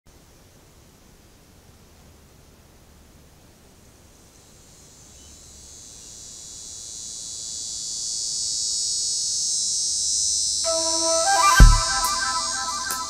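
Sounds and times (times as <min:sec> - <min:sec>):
high-pitched insect chorus: 0:04.1 - 0:13.0
music notes: 0:10.7 - 0:13.0.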